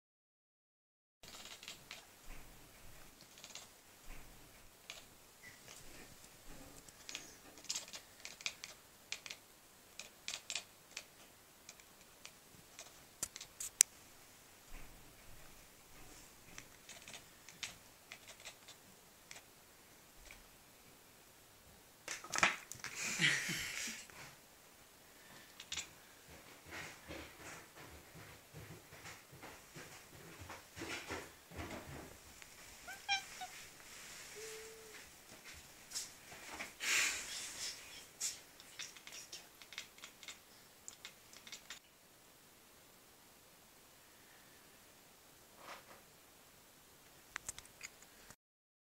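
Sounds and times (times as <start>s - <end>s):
kitten chattering clicks: 1.2s - 2.0s, 3.2s - 3.7s, 4.9s - 5.1s, 7.0s - 9.4s, 10.0s - 13.6s, 16.8s - 19.4s, 25.5s - 25.9s, 38.6s - 41.8s.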